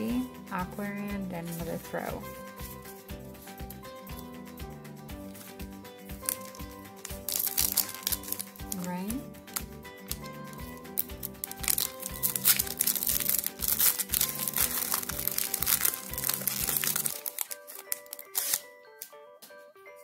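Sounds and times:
background music: 0.0 - 20.0
foil wrapper crinkling and tearing: 6.2 - 18.7.

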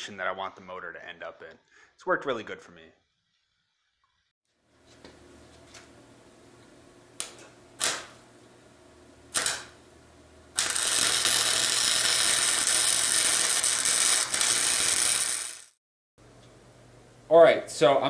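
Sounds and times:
crackling arc weld: 7.2 - 8.2, 9.3 - 9.8, 10.5 - 15.8.

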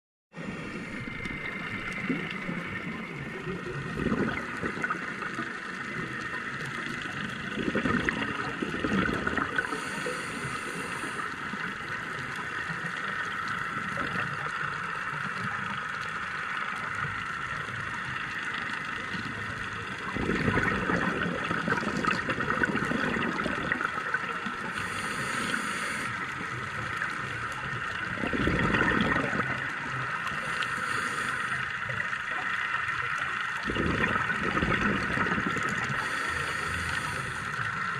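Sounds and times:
underwater crackling hiss: 0.4 - 37.9
diver exhaling bubbles: 3.8 - 5.4, 7.4 - 11.1, 20.1 - 26.2, 28.0 - 29.7, 33.6 - 37.4.

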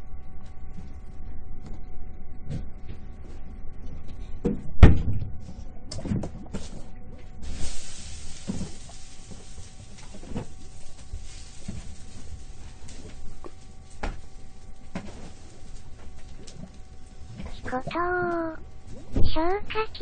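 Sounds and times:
steady hiss: 7.4 - 17.8.

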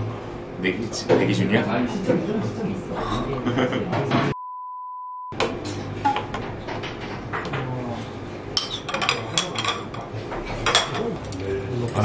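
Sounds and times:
test tone: 4.3 - 5.4
dishes clinking on table: 8.6 - 11.1.

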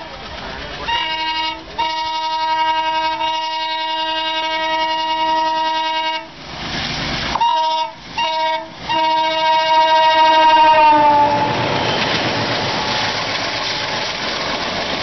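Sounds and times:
locomotive air horn blasts: 0.9 - 6.3, 7.4 - 11.6.

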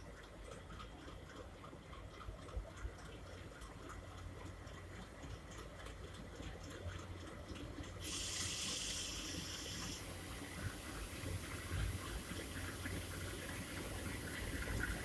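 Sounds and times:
diesel locomotives rumbling: 5.7 - 15.0
loud steady hiss: 8.0 - 13.6.

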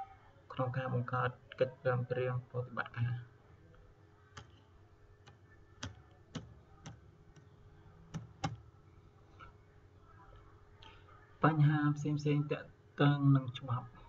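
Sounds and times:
faint steady hum: 0.0 - 14.0
sharp computer clicks: 5.2 - 7.5, 8.1 - 8.7.

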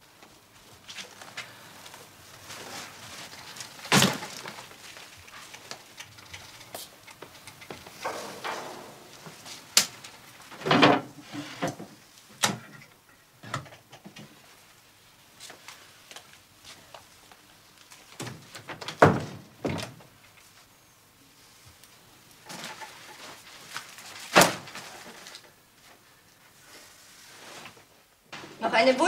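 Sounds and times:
knocks and thumps: 7.8 - 9.5.

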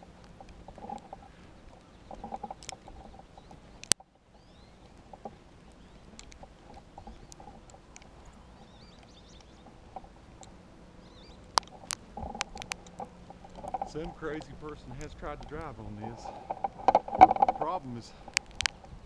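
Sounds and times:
sharp clicks: 0.0 - 19.0
small birds chirping: 0.0 - 19.0.

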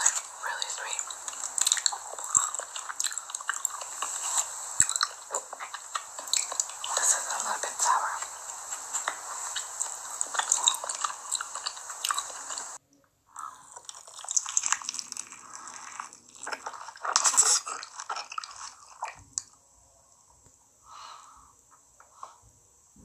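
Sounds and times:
close chewing: 0.0 - 12.8, 13.4 - 19.6
biting into crunchy fried food: 1.0 - 7.2, 8.2 - 12.7, 13.4 - 19.6.

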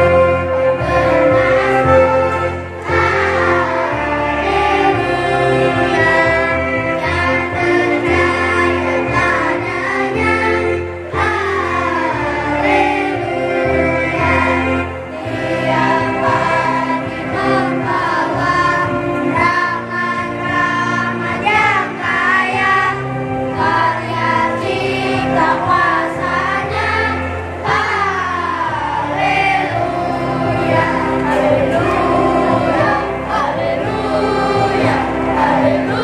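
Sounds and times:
children's choir singing: 0.0 - 36.0.

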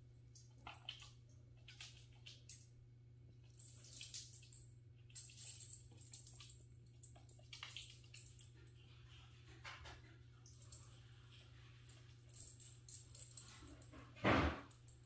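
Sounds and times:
puppy clicks and rustles: 0.3 - 2.8, 3.4 - 15.0.

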